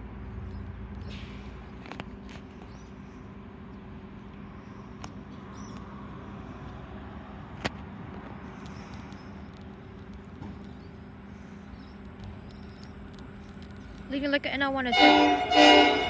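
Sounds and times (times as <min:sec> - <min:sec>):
distant diesel locomotives droning: 0:00.0 - 0:16.0.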